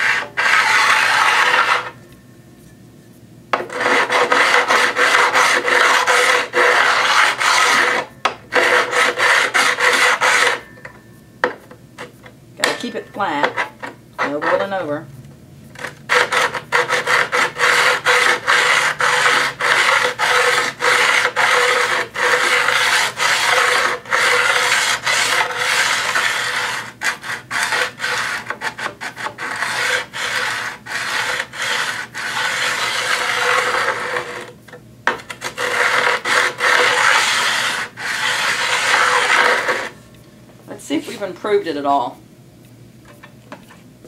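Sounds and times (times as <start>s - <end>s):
hone rasping on steel blade: 0.0s - 2.0s, 3.6s - 10.7s, 12.1s - 14.9s, 15.8s - 34.5s, 35.1s - 40.0s
steady ringing tone: 10.4s - 11.5s.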